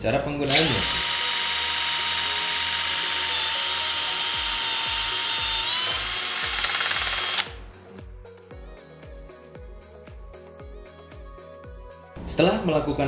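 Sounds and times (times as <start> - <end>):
background music with steady beat: 0.0 - 13.0
cordless drill whining: 0.4 - 7.6.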